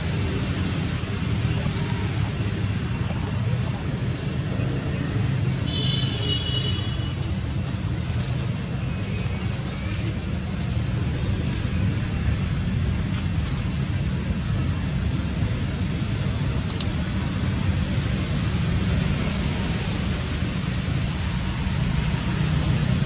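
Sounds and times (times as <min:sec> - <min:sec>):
low outdoor rumble: 0:00.0 - 0:23.0.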